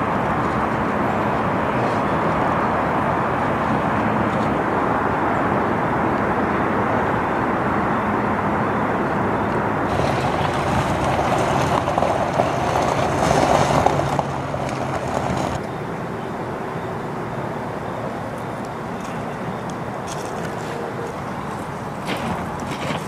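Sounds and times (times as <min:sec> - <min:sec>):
machinery rumble with hiss: 0:09.9 - 0:19.4.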